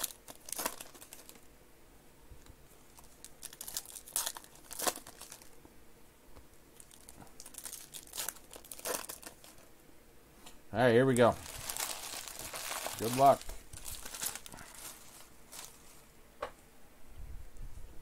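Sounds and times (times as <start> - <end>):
foil wrapper crinkling: 0.0 - 1.5, 2.7 - 5.6, 6.8 - 9.7, 11.2 - 16.1.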